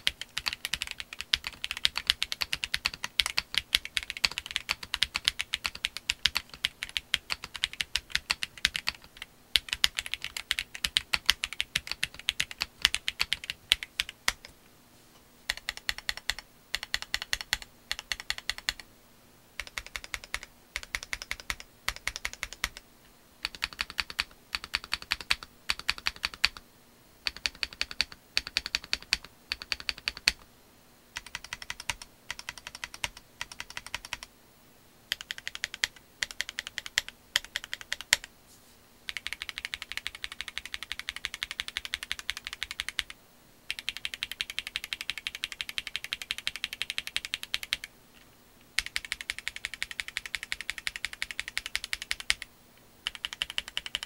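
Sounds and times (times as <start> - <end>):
mechanical keyboard typing: 0.0 - 14.5, 15.5 - 18.8, 19.6 - 22.8, 23.4 - 26.6, 27.2 - 30.4, 31.2 - 34.3, 35.1 - 38.3, 39.1 - 47.9, 48.8 - 54.0.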